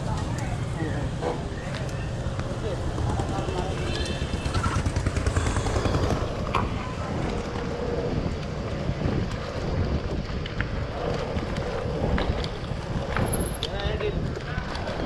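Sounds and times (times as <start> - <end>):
tyres rumbling on rough road: 0.0 - 15.0
wind buffeting microphone: 0.0 - 15.0.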